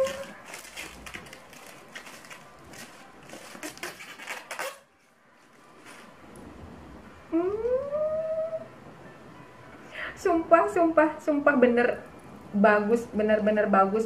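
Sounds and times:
wrapper crinkling and rustling: 0:00.0 - 0:06.1.

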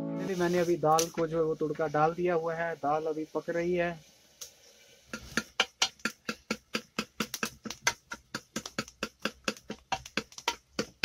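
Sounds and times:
kitchen knife chopping: 0:05.1 - 0:11.0.

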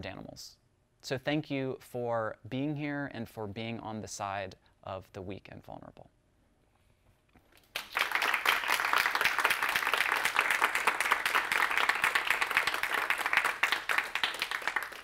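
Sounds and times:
audience applauding: 0:07.6 - 0:15.0.

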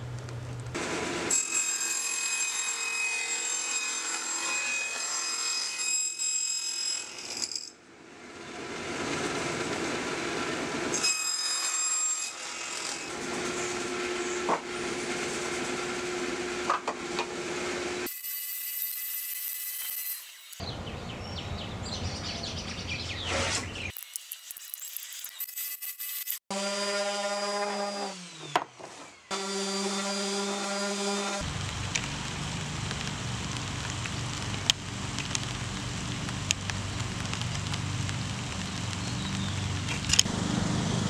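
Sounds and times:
table saw cutting wood: 0:00.8 - 0:07.7, 0:08.9 - 0:20.6, 0:23.3 - 0:31.4.

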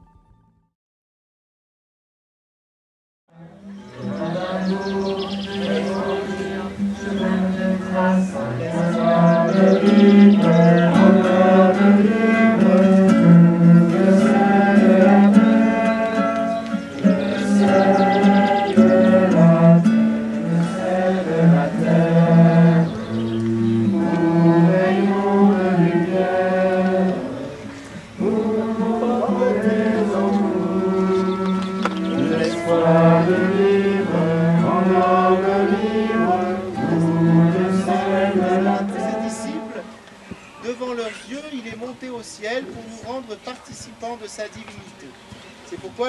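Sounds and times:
group singing a hymn: 0:03.3 - 0:40.1
guitar: 0:03.4 - 0:40.3.

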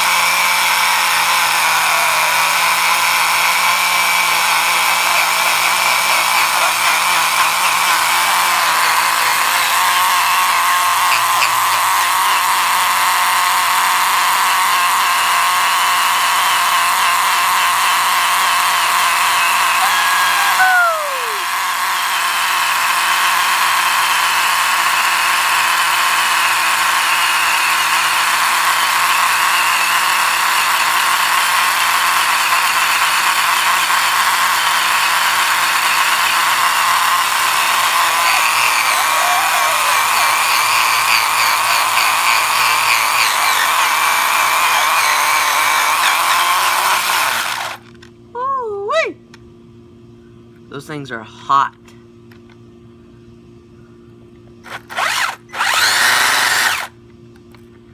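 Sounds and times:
electric motor high whine: 0:00.0 - 0:48.0, 0:54.6 - 0:57.0
tires spinning on concrete: 0:25.6 - 0:47.6.

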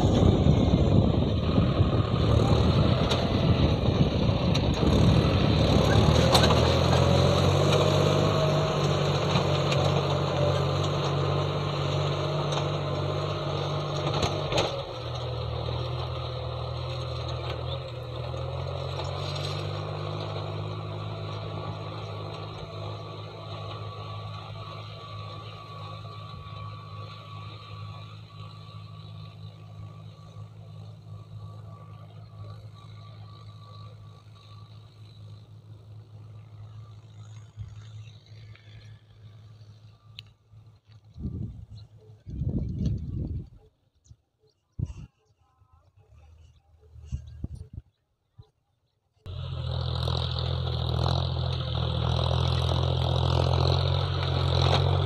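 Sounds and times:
tractor diesel engine under load: 0:00.0 - 0:43.6, 0:49.2 - 0:55.0.

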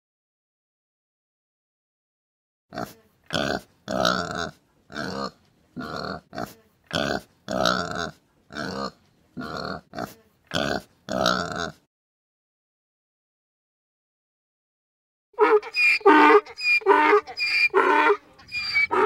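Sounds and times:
pig grunting and oinking: 0:02.7 - 0:11.9, 0:15.4 - 0:19.0.

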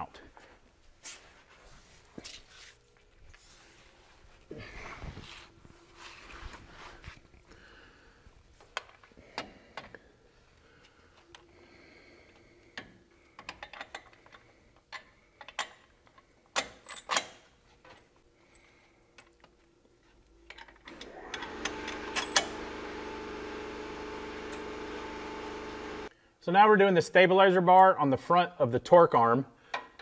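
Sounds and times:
steady mechanical hum: 0:18.5 - 0:26.1.

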